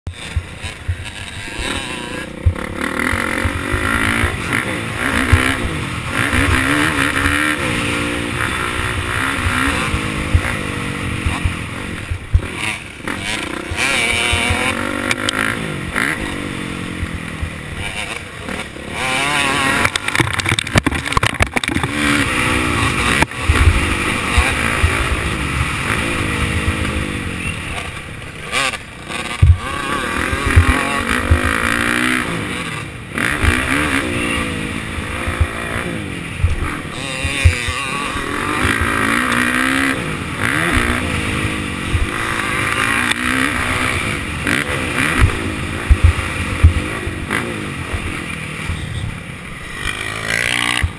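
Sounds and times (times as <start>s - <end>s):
dirt bike engine revving: 0.1s - 50.9s
low thumps: 8.1s - 12.6s, 29.3s - 29.7s, 45.1s - 46.9s
wind noise: 19.6s - 28.2s.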